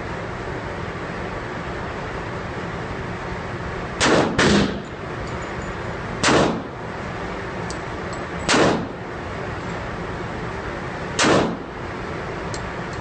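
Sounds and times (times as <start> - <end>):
pistol shots echoing: 4.0 - 4.8, 6.2 - 6.7, 8.5 - 8.9, 11.2 - 11.6.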